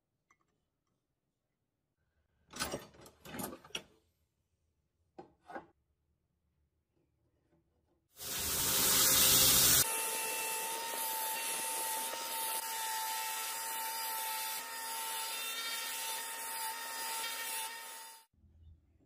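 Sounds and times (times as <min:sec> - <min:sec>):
belt grinder grinding metal: 0:08.2 - 0:18.2.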